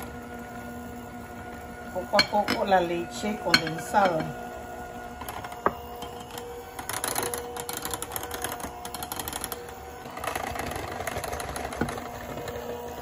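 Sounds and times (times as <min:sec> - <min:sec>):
electric hand mixer whipping: 0:00.0 - 0:13.0
spatula scraping bowl: 0:02.0 - 0:04.4.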